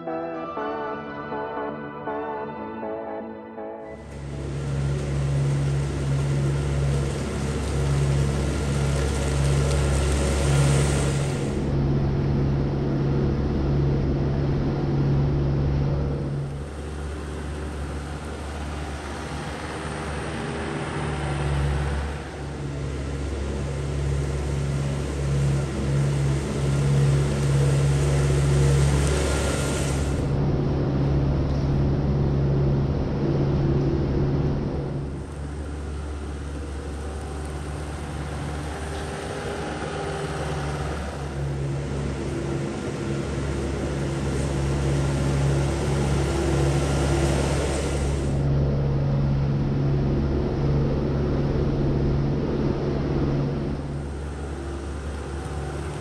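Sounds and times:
tractor engine running: 4.0 - 56.0
hiss: 4.3 - 11.7, 19.5 - 30.3, 43.0 - 48.4.

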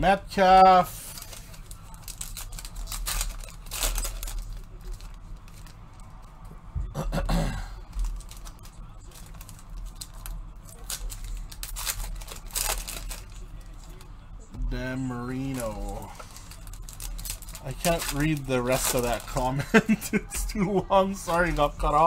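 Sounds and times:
low steady hum: 0.0 - 22.0
foil wrappers tearing and crinkling: 1.0 - 6.1, 7.8 - 14.1, 15.3 - 19.9.

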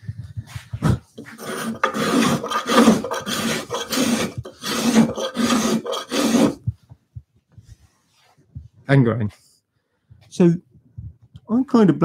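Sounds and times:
spokeshave rasping on wood: 1.2 - 6.7.

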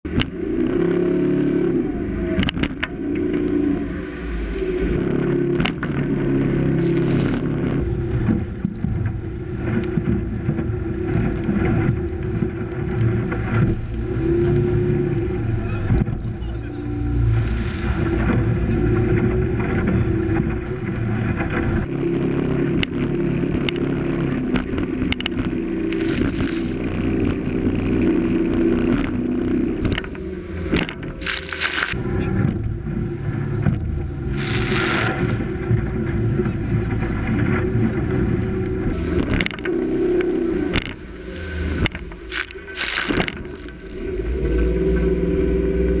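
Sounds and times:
hull slapping on waves: 0.0 - 46.0
outboard motor running: 0.0 - 46.0
wind buffeting microphone: 0.0 - 46.0
rushes of spray: 13.4 - 20.9, 33.0 - 45.6.

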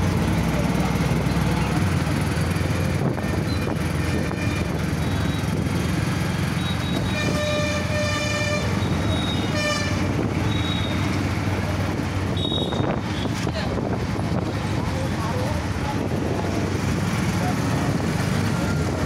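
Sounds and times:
engine and road rumble: 0.0 - 19.0
vehicle horn honking: 6.6 - 11.2, 12.3 - 13.3.

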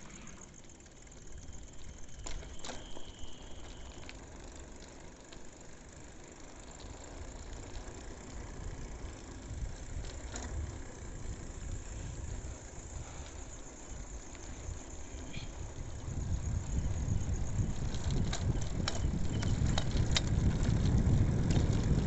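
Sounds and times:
bicycle tyres rolling on concrete: 0.0 - 22.0
wind rumble on microphone: 8.6 - 22.0.

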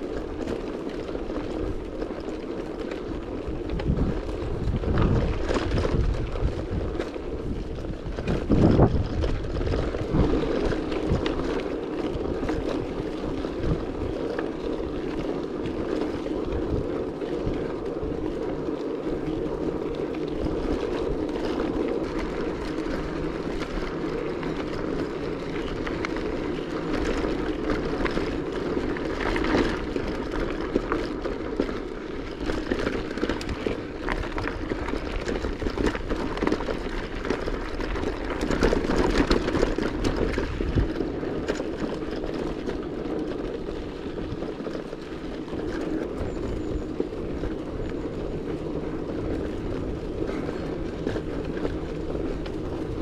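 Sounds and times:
tyres rolling: 0.0 - 53.0
wind rushing over microphone: 3.1 - 42.6.

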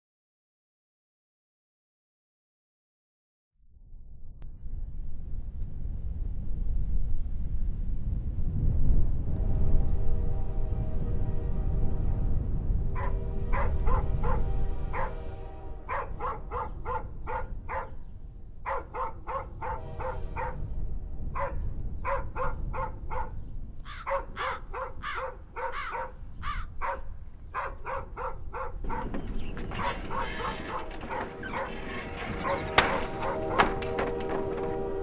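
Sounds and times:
dog barking: 13.0 - 15.2, 15.8 - 18.0, 18.6 - 20.7, 21.3 - 33.8.

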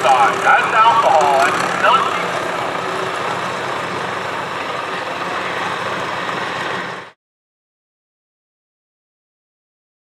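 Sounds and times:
tractor engine idling: 0.0 - 7.2.

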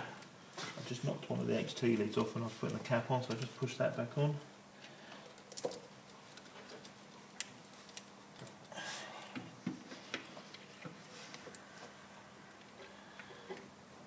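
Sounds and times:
faint clicks of plastic parts: 2.2 - 3.6, 4.8 - 11.7.

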